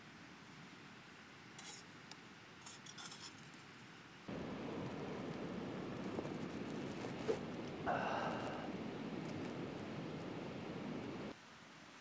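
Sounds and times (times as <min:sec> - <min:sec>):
steady rushing noise: 0:04.3 - 0:11.4.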